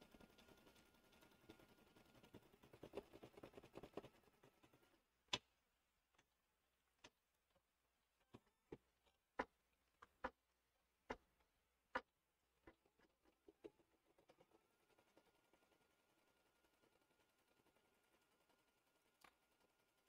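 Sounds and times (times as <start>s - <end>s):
fast even ticking patter: 0.0s - 4.8s.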